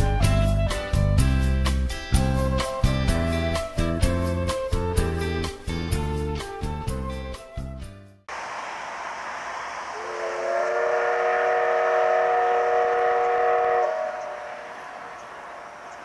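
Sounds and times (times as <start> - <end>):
steam locomotive whistle blast: 9.9 - 15.4.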